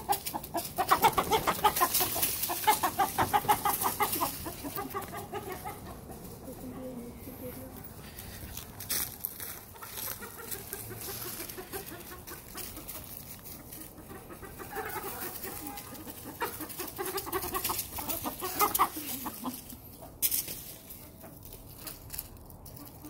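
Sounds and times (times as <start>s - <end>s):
chickens clucking: 0.0s - 23.0s.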